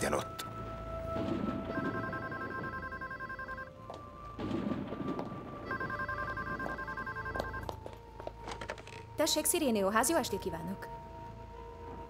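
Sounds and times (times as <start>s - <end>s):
telephone ringing: 1.4s - 4.4s, 5.5s - 7.8s.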